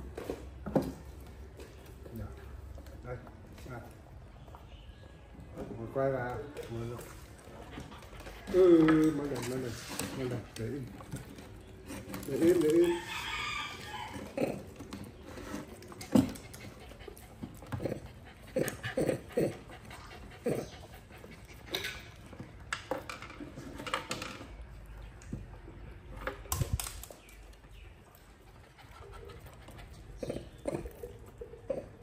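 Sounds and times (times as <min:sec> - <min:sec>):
animal panting: 0:15.3 - 0:22.2, 0:28.2 - 0:32.0.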